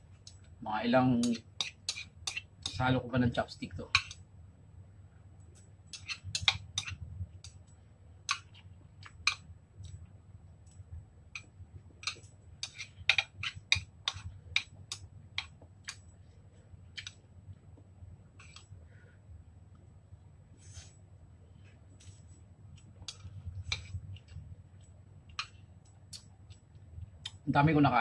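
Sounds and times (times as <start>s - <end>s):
chopsticks clicking on bowl: 10.7s - 16.1s.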